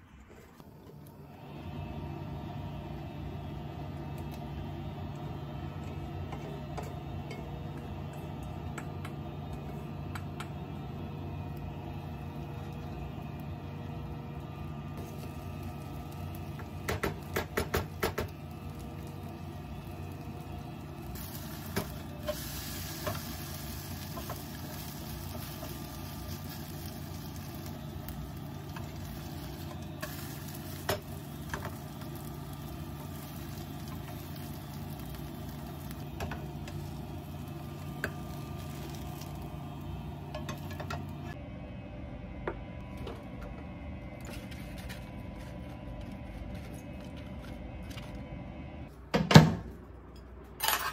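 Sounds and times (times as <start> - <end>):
steady low hum: 0.0 - 50.8
food sizzling in a pan: 15.0 - 41.3.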